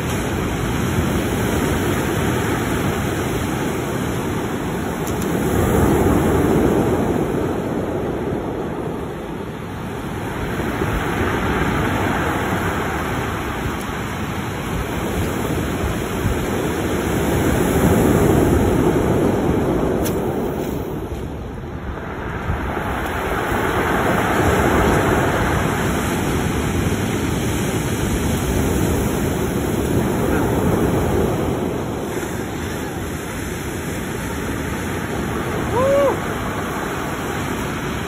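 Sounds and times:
surf breaking on a cobble beach: 0:00.0 - 0:38.0.

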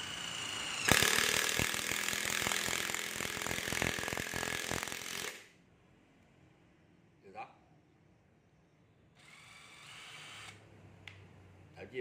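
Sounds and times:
cordless screwdriver motor: 0:00.0 - 0:05.4, 0:09.2 - 0:10.6.

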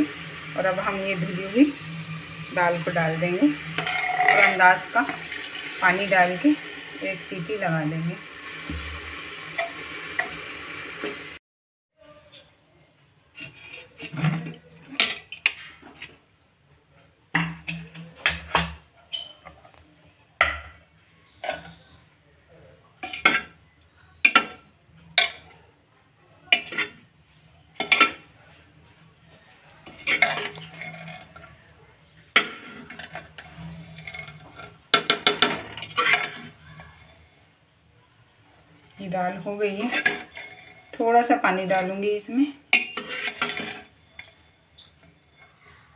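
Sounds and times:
metal ladle scraping a pot: 0:00.0 - 0:10.4, 0:13.4 - 0:16.2, 0:26.5 - 0:27.1, 0:29.8 - 0:37.4, 0:39.3 - 0:45.7.

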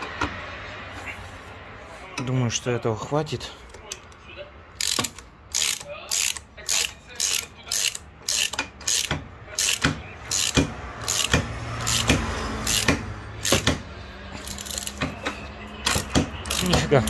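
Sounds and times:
ratchet wrench clicking: 0:04.8 - 0:13.8, 0:14.4 - 0:15.0, 0:15.9 - 0:16.8.

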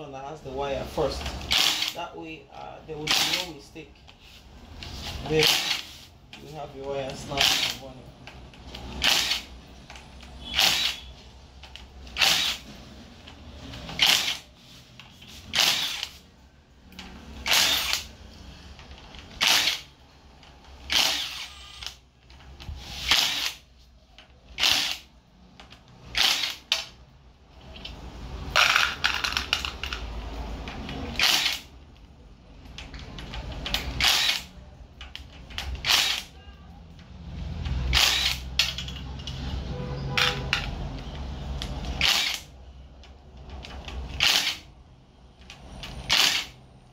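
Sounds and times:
power tool spinning nuts: 0:01.3 - 0:02.0, 0:05.1 - 0:06.0, 0:07.3 - 0:07.8, 0:08.7 - 0:09.6, 0:10.5 - 0:11.1, 0:12.0 - 0:12.8, 0:13.8 - 0:14.5, 0:15.5 - 0:16.2, 0:17.4 - 0:18.1, 0:19.3 - 0:19.9, 0:20.8 - 0:22.0, 0:22.9 - 0:23.6, 0:24.6 - 0:25.1, 0:26.0 - 0:26.9, 0:31.1 - 0:31.7, 0:33.7 - 0:34.5, 0:35.8 - 0:36.3, 0:37.9 - 0:38.9, 0:41.9 - 0:42.5, 0:44.1 - 0:44.6, 0:46.1 - 0:46.6.

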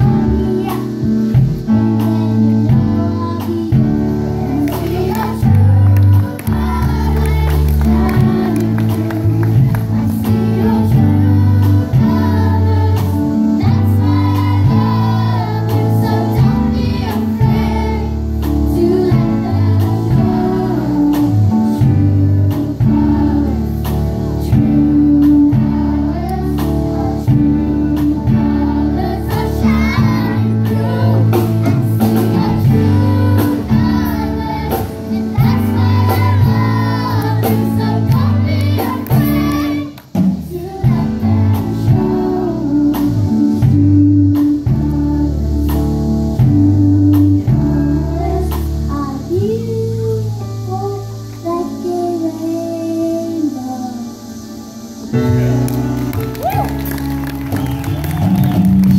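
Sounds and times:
choir singing: 0:00.0 - 0:43.7
band with drums and bass: 0:00.0 - 0:53.2, 0:55.0 - 0:58.9.

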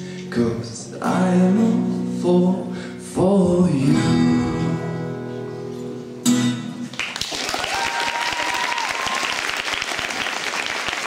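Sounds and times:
audience applause: 0:06.9 - 0:11.0.

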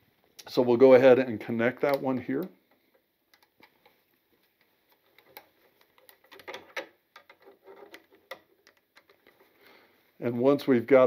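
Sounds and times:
screwdriver clicks and scrapes: 0:03.3 - 0:09.4.

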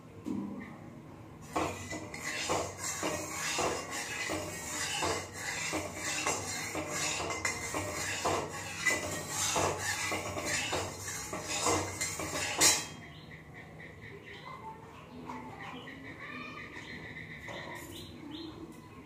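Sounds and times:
metal spatula scraping a wok: 0:01.4 - 0:13.0
spatula clanking against pan: 0:01.4 - 0:13.0.

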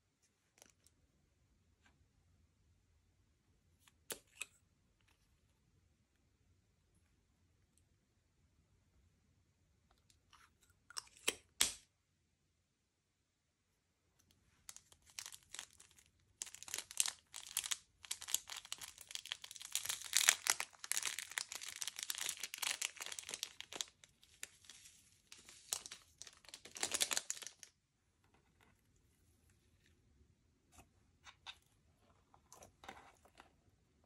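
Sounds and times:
slime crackling and popping: 0:14.7 - 0:27.7.

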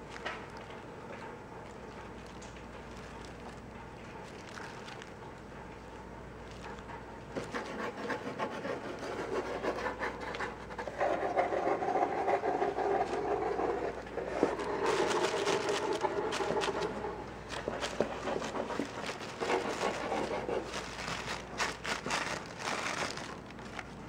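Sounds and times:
claws scratching on cardboard: 0:06.6 - 0:23.8
tissue paper rustling: 0:13.9 - 0:24.0.

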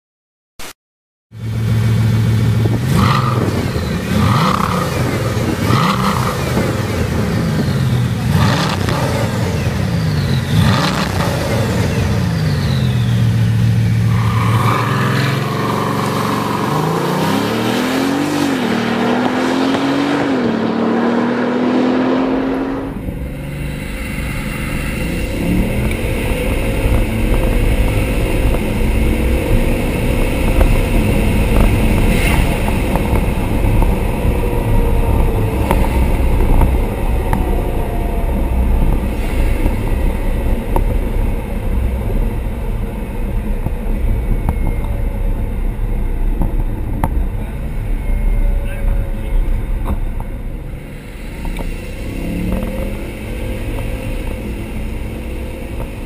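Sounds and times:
rough rumbling engine: 0:01.3 - 0:56.0
car engine revving: 0:01.4 - 0:56.0.

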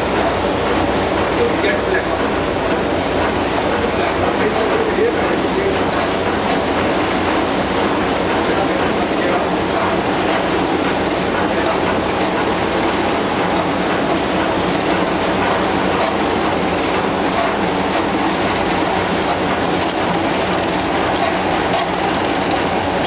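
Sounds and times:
printing machine clatter: 0:00.0 - 0:23.0.

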